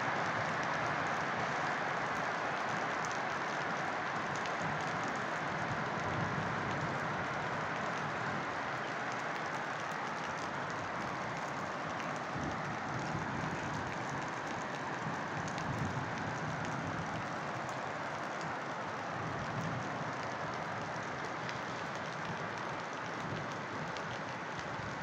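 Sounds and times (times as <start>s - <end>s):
steady rain on trees and roofs: 0.0s - 25.0s.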